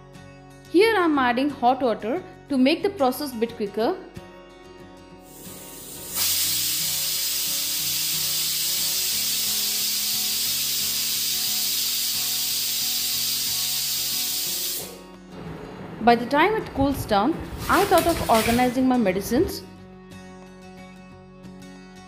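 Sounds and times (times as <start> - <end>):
pressure cooker venting steam: 5.3 - 15.0.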